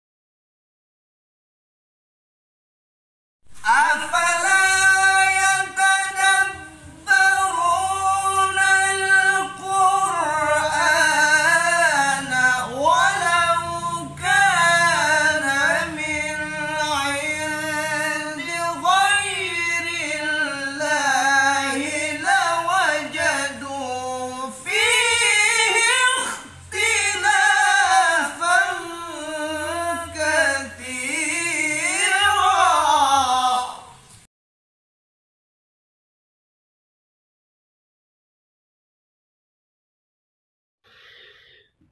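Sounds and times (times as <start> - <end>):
men chanting recitation: 3.6 - 34.0
short breaths: 40.9 - 41.9.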